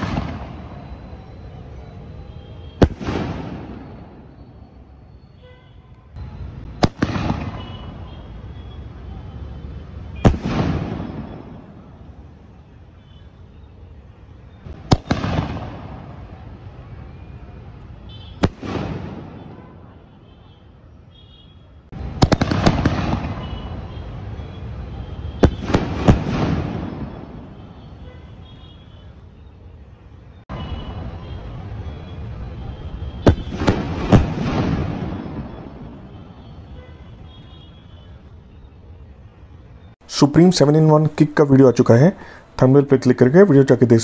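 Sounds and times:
firework bangs with echo: 0.0s - 0.9s, 2.8s - 4.4s, 6.6s - 8.0s, 10.1s - 12.0s, 14.7s - 16.4s, 18.3s - 19.9s, 21.9s - 23.9s, 25.3s - 27.8s, 33.2s - 36.2s
firework shells bursting: 22.0s - 23.8s.

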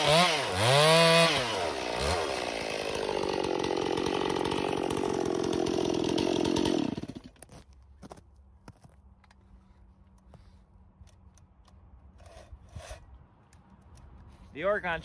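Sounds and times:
chainsaw cutting at high revs: 0.0s - 7.4s.

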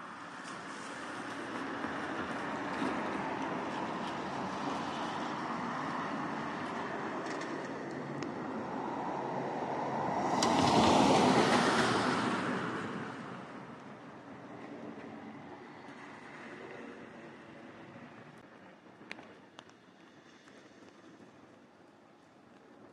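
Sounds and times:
vehicle passing on wet street: 0.1s - 14.9s.

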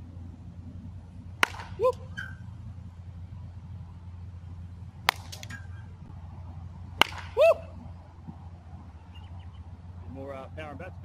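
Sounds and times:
baseball bat cracking ball: 1.3s - 2.3s, 5.0s - 5.9s, 6.9s - 8.4s
loud pitched squeak: 2.1s - 2.5s, 5.4s - 5.9s.

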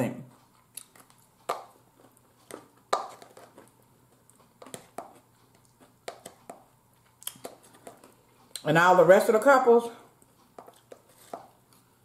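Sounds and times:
fork tapping plastic container: 1.4s - 1.8s, 2.5s - 3.6s, 6.0s - 6.7s.

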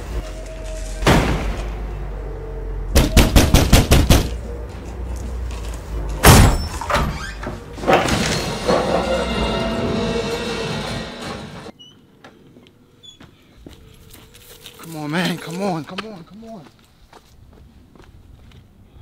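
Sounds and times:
film soundtrack music: 7.5s - 11.7s.

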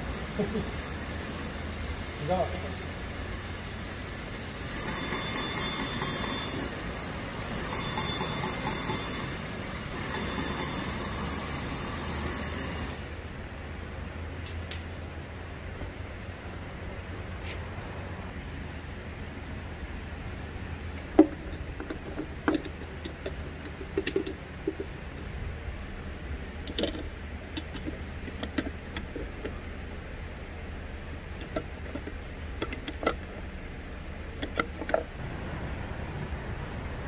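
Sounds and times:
steady low hum: 0.0s - 37.0s
tools clicking and knocking: 7.7s - 9.2s, 21.0s - 24.9s, 26.7s - 29.6s, 31.4s - 33.4s, 34.4s - 35.1s.

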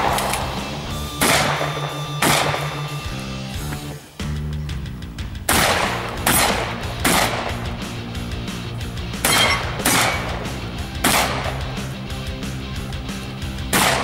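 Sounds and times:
shotgun shots: 0.0s - 3.1s, 5.5s - 7.8s, 9.1s - 11.8s, 13.6s - 14.0s
background music: 0.0s - 14.0s.

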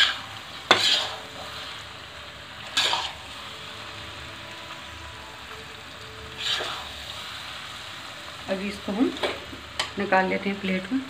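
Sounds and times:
spoon scraping pan: 0.0s - 1.8s, 2.7s - 3.2s, 6.4s - 7.0s
soft sizzle: 0.0s - 11.0s.

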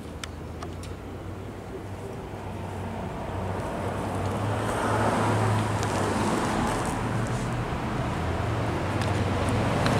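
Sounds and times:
road traffic engine hum: 0.0s - 9.9s.

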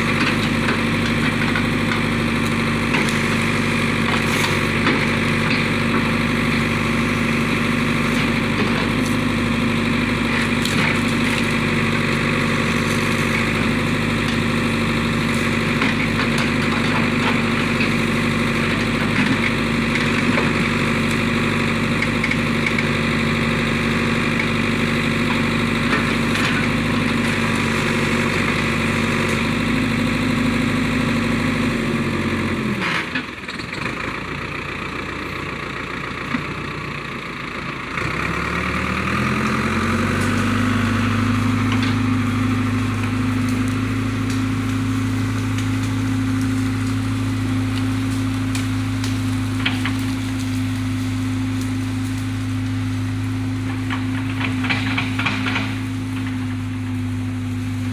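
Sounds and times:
diesel engine running: 0.0s - 57.9s.

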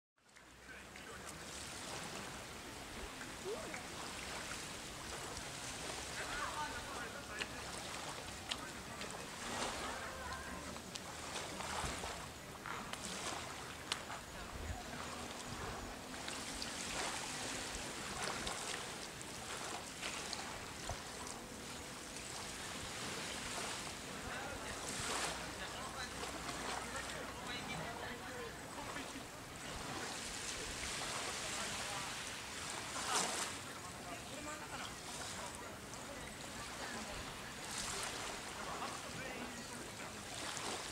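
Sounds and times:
gentle waves: 0.2s - 40.9s
wind: 0.2s - 40.9s.

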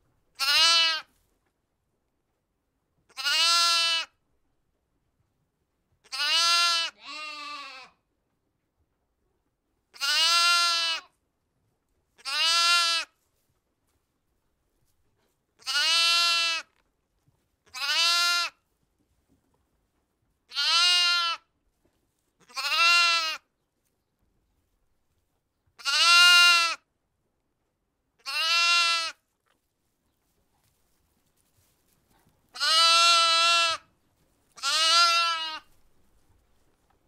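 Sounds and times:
sheep bleating: 0.4s - 1.1s, 3.1s - 4.1s, 6.0s - 8.0s, 10.0s - 11.1s, 12.2s - 13.1s, 15.6s - 16.7s, 17.7s - 18.6s, 20.5s - 21.5s, 22.4s - 23.4s, 25.8s - 26.8s, 28.2s - 29.2s, 32.6s - 33.9s, 34.6s - 35.7s.

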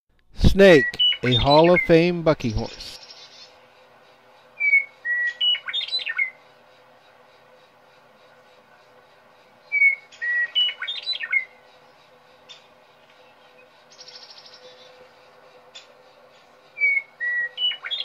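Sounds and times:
bird song whistled notes: 0.6s - 3.6s, 4.6s - 6.5s, 9.6s - 18.0s.

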